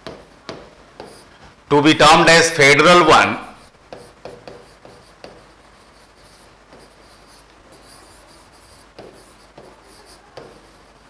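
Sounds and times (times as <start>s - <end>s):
pen scratching on touchscreen: 0.0s - 1.3s, 3.8s - 11.0s.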